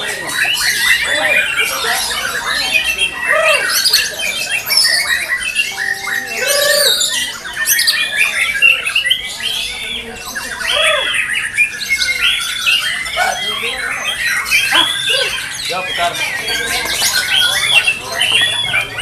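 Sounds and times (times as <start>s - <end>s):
birds singing whistles and trills: 0.0s - 19.0s.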